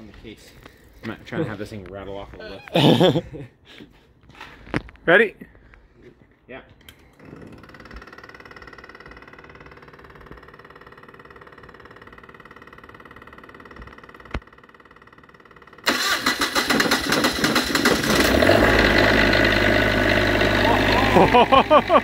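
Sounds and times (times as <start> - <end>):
generator running hum: 6.8 - 22.0
starter cranking engine: 6.8 - 22.0.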